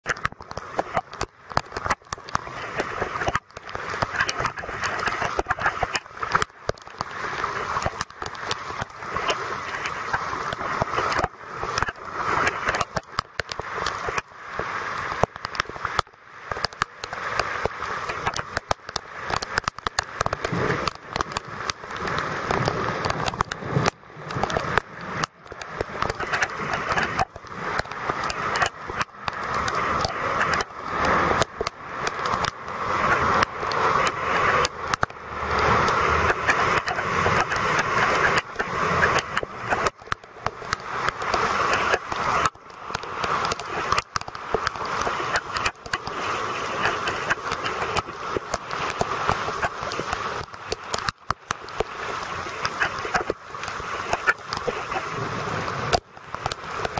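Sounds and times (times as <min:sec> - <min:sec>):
heavy rain pattering: 0:00.0 - 0:56.9
van driving through floodwater: 0:30.8 - 0:40.2.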